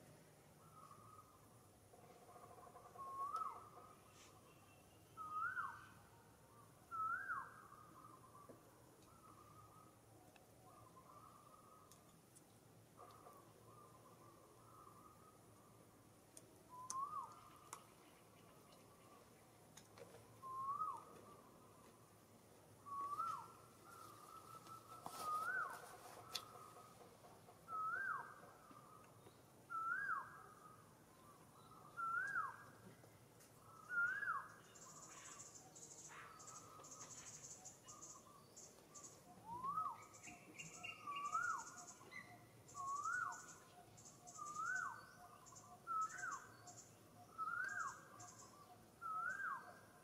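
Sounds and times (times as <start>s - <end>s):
bird whistled call: 5.2s - 5.9s, 6.9s - 8.1s, 16.7s - 17.4s, 20.4s - 21.1s, 22.8s - 25.8s, 27.7s - 28.3s, 29.7s - 30.5s, 31.8s - 32.6s, 33.8s - 34.6s, 39.4s - 43.5s, 44.2s - 45.2s, 45.9s - 46.5s, 47.2s - 49.8s.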